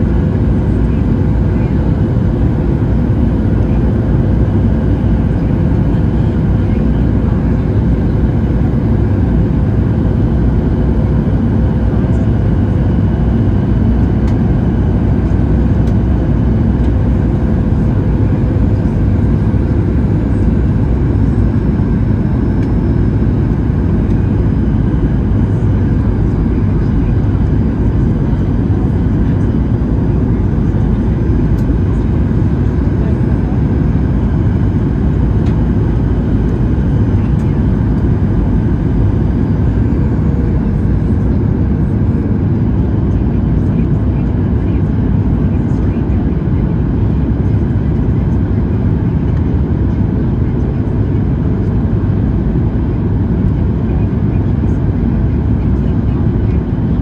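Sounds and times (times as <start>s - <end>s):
airliner cabin engine rush: 0.0s - 57.0s.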